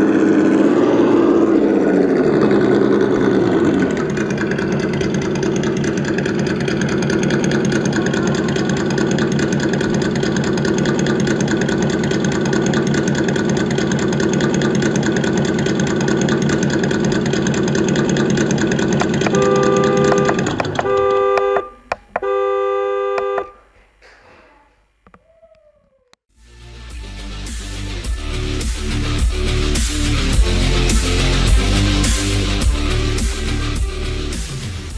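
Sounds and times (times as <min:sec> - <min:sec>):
simulated engine idling: 0:00.0 - 0:23.6
simulated horn honking: 0:17.4 - 0:23.8.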